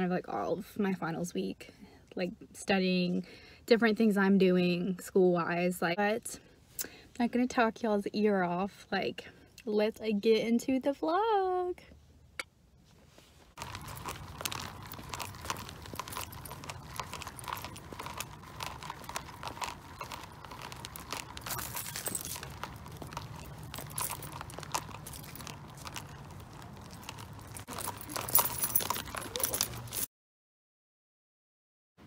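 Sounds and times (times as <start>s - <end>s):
rustling and clattering of carried things: 12.8s - 30.1s
footsteps on pavement: 13.5s - 30.1s.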